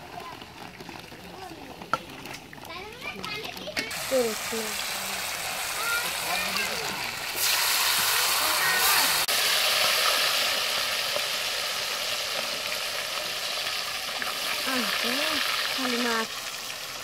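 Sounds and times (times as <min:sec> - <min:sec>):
fish sizzling in hot oil: 0:00.0 - 0:17.0.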